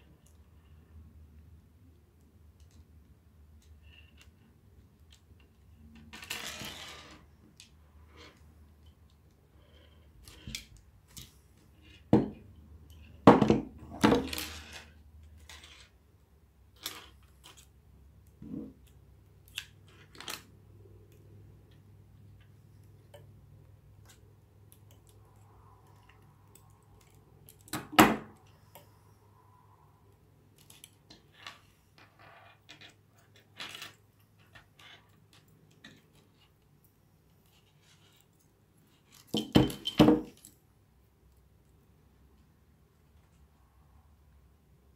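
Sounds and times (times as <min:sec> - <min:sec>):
tools set down on wooden table: 0:39.3 - 0:40.4.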